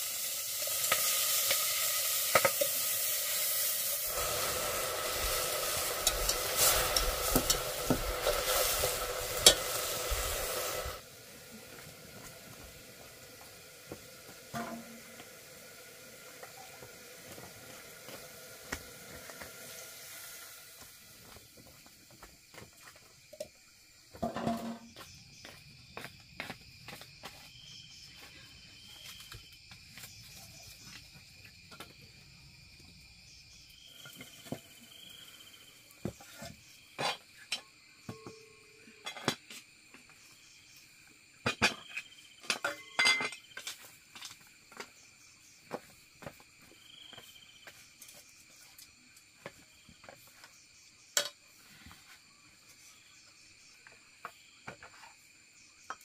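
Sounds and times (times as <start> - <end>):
high trill of insects: 0.0 - 56.0
spoon clinking on metal pots: 42.5 - 43.4.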